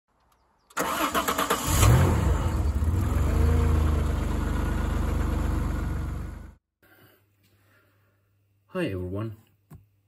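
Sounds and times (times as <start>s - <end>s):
car engine starting and idling: 0.7s - 6.6s.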